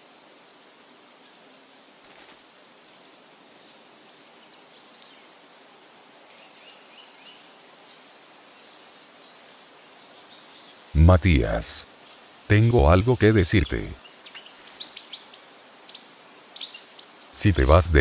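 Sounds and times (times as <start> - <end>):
steady outdoor hiss: 0.0 - 18.0.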